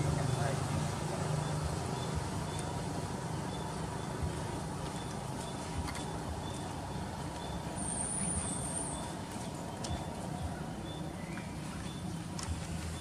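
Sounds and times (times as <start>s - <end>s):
faint high chirp: 4.8s - 12.2s.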